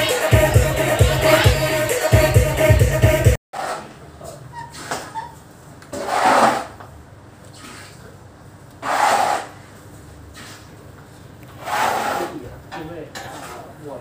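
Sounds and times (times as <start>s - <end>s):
broom sweeping a floor: 7.5s - 8.0s, 10.3s - 10.7s.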